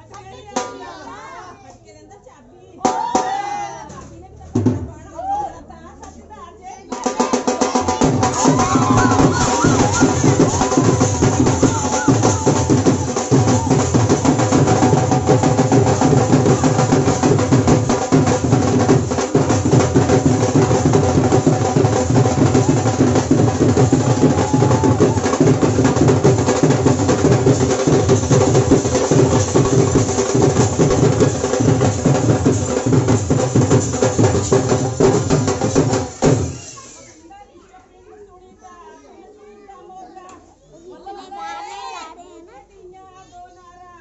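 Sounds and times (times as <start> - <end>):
dhol drums playing dance rhythm: 0.4 - 1.1, 2.8 - 3.6, 4.5 - 5.4, 6.9 - 37.0.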